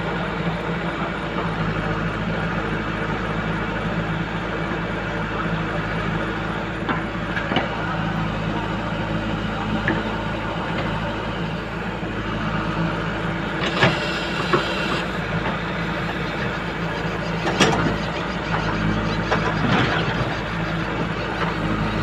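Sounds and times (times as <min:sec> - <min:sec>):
backhoe diesel engine under load: 0:00.0 - 0:22.0.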